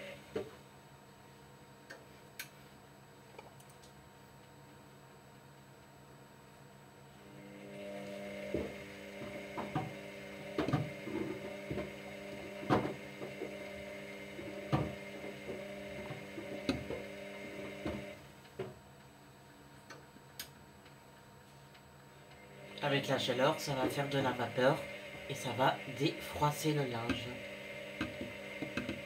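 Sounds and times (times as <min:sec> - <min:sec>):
washer-dryer motor humming: 0:07.2 - 0:18.4, 0:22.3 - 0:29.0.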